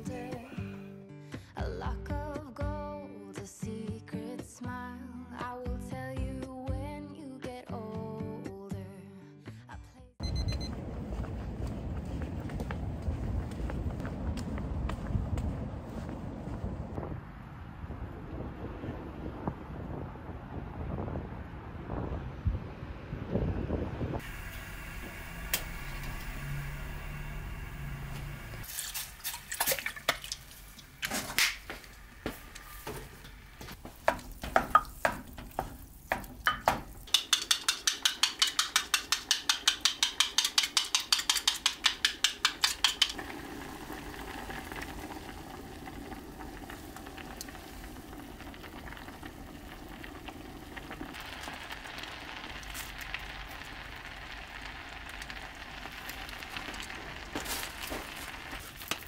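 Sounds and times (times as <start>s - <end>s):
egg beaten in a glass: 36.5s - 43.2s
utensils and dishes clinking: 36.5s - 43.2s
porridge simmering in a pot: 36.9s - 59.0s.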